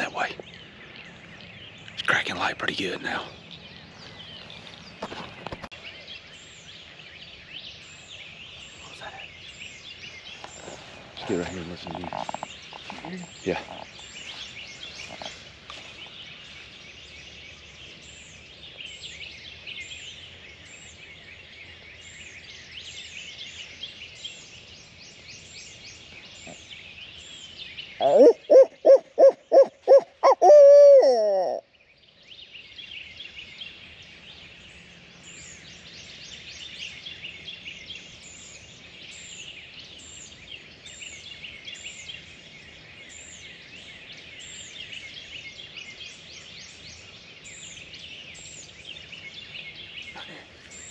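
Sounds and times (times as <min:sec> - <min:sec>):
songbirds chirping: 0:00.0 - 0:50.9
owl hooting: 0:28.0 - 0:31.7.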